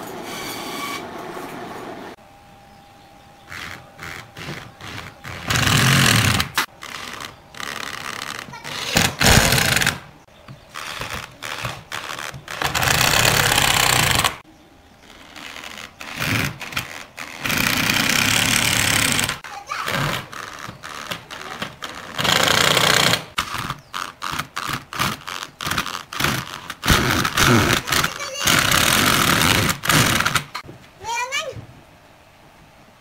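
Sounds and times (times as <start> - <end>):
cordless drill running: 12.6 - 14.4.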